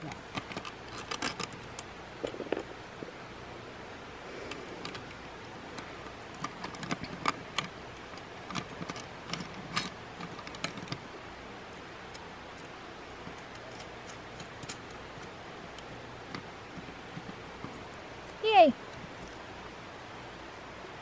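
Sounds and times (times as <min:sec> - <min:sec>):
metal parts clicking and clinking: 0:00.0 - 0:02.7, 0:04.5 - 0:11.1, 0:12.1 - 0:19.4.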